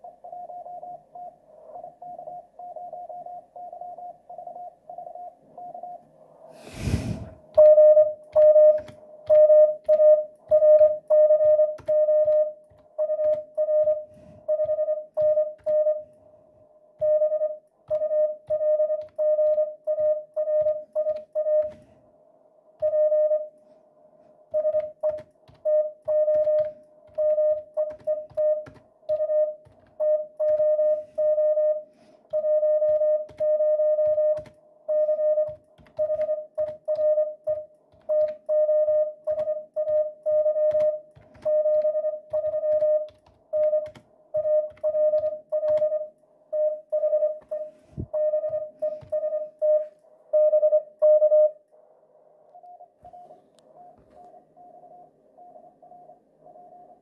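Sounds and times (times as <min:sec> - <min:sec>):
morse code tone: 0:07.2 - 0:16.1, 0:17.0 - 0:21.9, 0:22.8 - 0:23.6, 0:24.5 - 0:51.6
computer keyboard typing clicks: 0:24.6 - 0:30.7, 0:35.4 - 0:38.5, 0:40.7 - 0:44.1, 0:44.7 - 0:45.9.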